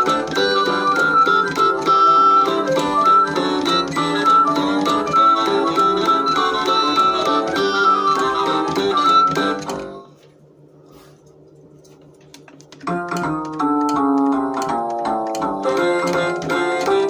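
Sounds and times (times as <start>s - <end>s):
toy music through small speakers: 0.0s - 10.0s, 15.4s - 17.0s.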